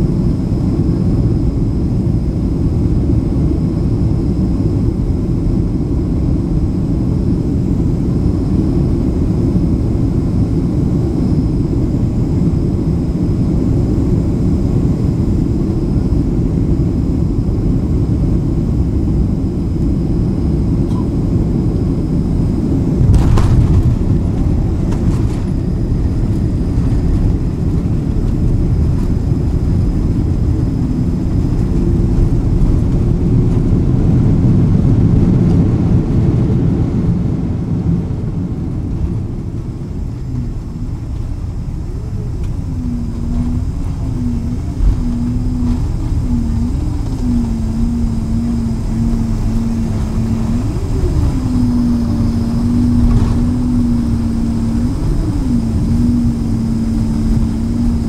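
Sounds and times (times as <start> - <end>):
aircraft cabin engine rumble: 0.0 - 58.0
thud: 23.1 - 24.0.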